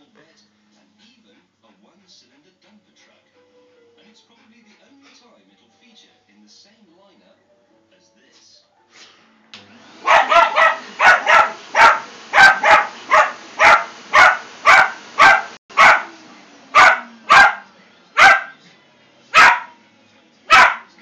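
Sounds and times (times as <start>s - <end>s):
puppy barking: 10.0s - 18.6s, 19.3s - 19.8s, 20.5s - 21.0s.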